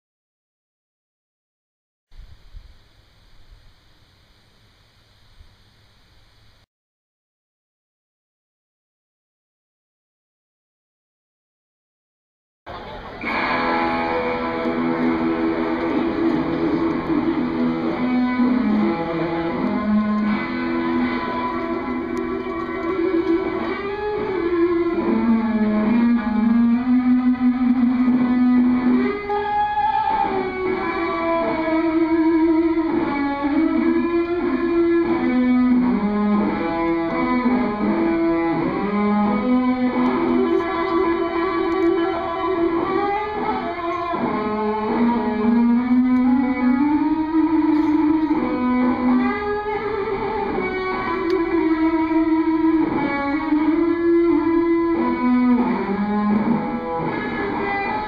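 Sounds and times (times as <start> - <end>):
electric guitar slow melody: 12.7 - 58.0.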